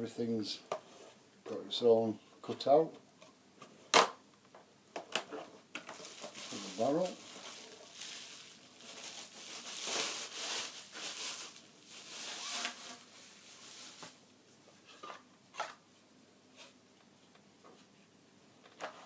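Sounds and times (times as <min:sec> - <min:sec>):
plastic wrapping crinkling: 0:05.8 - 0:14.2.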